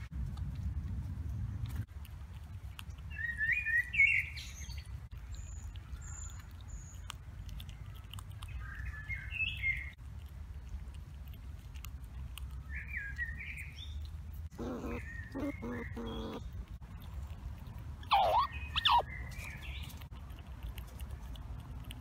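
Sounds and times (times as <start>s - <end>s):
low steady rumble: 0.0s - 3.3s
songbird singing: 3.0s - 10.0s, 12.5s - 16.8s, 18.0s - 20.1s.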